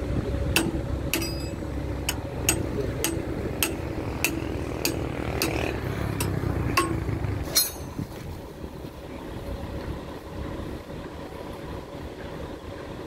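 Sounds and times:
excavator engine idling: 0.0 - 13.0
hammer striking steel: 0.5 - 8.0.

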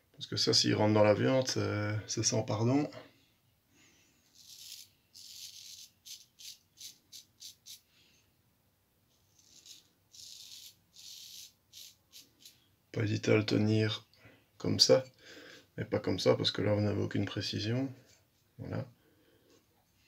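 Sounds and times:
straight razor scraping stubble: 4.4 - 7.8, 9.3 - 12.6.

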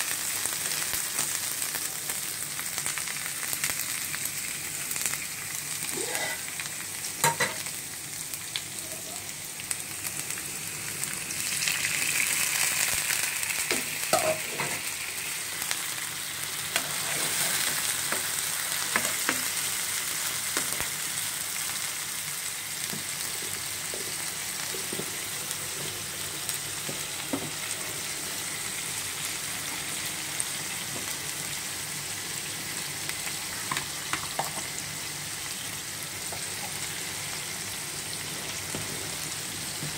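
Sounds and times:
onions sizzling in oil: 0.0 - 39.9
metal spatula scraping pan: 6.0 - 6.5.

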